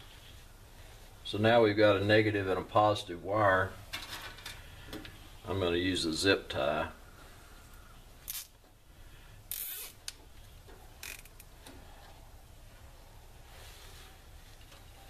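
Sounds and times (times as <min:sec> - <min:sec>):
zip tie click: 0:08.3 - 0:08.6, 0:09.5 - 0:10.2
zip tie rasping: 0:09.5 - 0:10.1.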